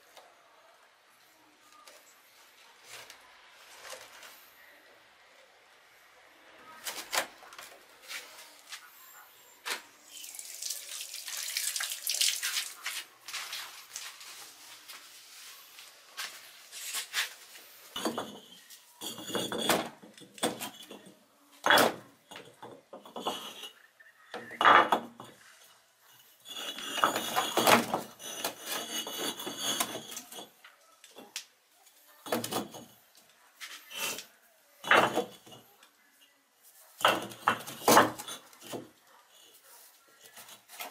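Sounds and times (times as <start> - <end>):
metal clattering and knocking: 18.0 - 23.7, 26.6 - 30.4, 34.9 - 35.5
metal scraping: 22.5 - 30.6.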